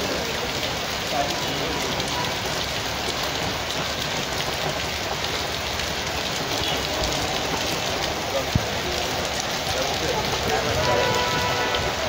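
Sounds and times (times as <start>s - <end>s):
heavy rain splashing on street: 0.0s - 12.0s.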